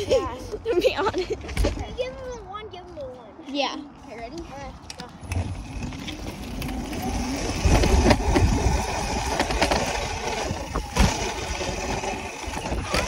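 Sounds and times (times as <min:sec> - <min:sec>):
rattling over a bumpy trail: 0:04.0 - 0:13.0
wind buffeting the microphone: 0:04.2 - 0:13.0.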